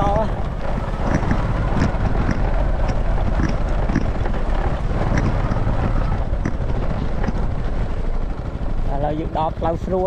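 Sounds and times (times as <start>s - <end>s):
small motorbike running: 0.0s - 10.0s
wind buffeting microphone: 0.0s - 10.0s.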